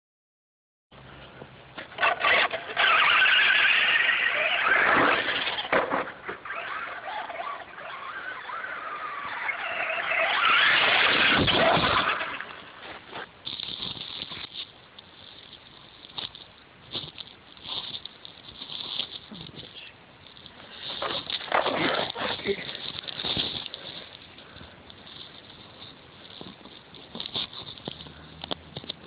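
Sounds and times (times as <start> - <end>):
toy truck motor whining: 1.9 - 12.8.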